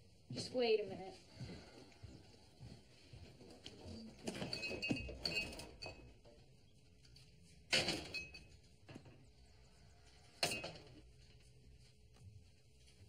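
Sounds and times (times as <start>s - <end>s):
dishes clinking: 4.2s - 6.2s, 7.7s - 9.1s, 10.4s - 11.0s.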